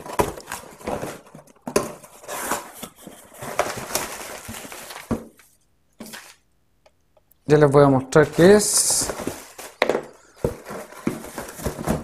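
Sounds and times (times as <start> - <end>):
cardboard scraping and rustling: 0.0 - 6.4, 8.3 - 12.0.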